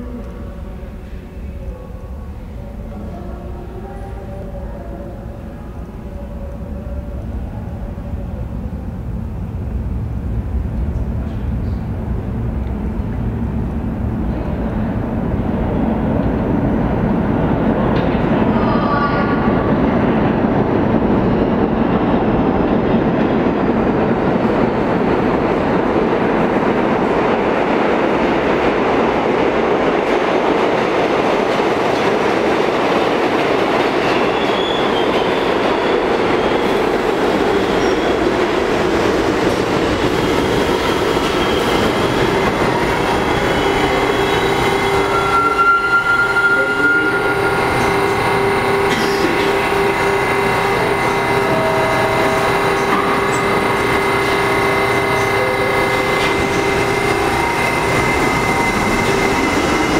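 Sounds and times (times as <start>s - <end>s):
subway train wheels rumbling: 0.0s - 59.9s
faint high squeal: 43.5s - 48.2s.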